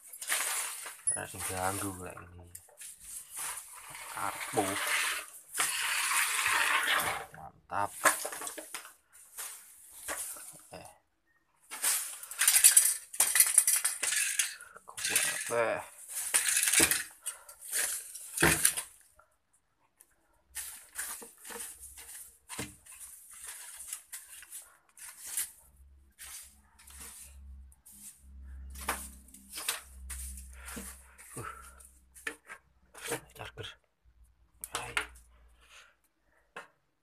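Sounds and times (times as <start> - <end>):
clicks and knocks of objects moved: 0.0 - 10.7, 11.6 - 19.1, 28.3 - 33.4
scraping and brushing strokes: 0.1 - 2.1, 2.7 - 7.3, 7.9 - 10.6, 20.6 - 33.3.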